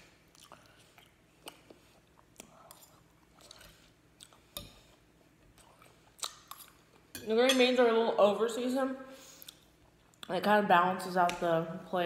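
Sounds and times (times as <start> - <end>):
chewing with mouth clicks: 0.2 - 7.1, 9.4 - 10.3.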